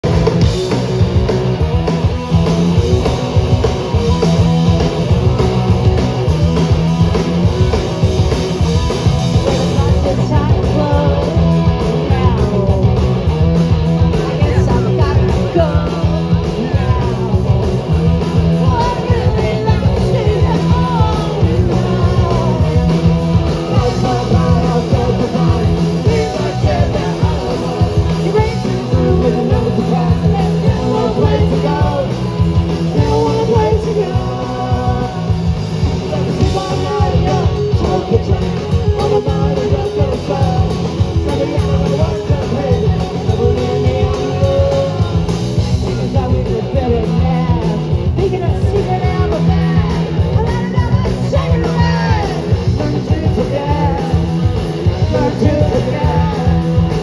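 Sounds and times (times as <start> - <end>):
punk rock band playing live: 0.0 - 57.0
woman singing: 9.7 - 12.9, 18.6 - 23.0, 23.6 - 32.1, 46.0 - 54.2.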